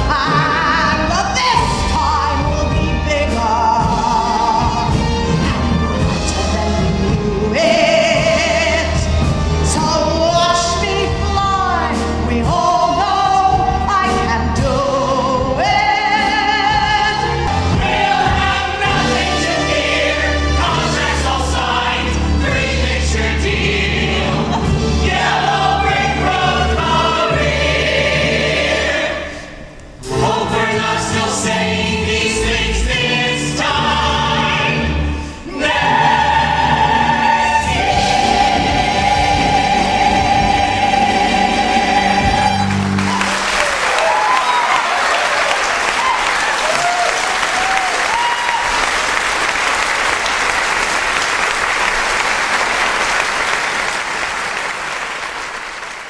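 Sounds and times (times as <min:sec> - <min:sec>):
ensemble singing with music: 0:00.0 - 0:43.5.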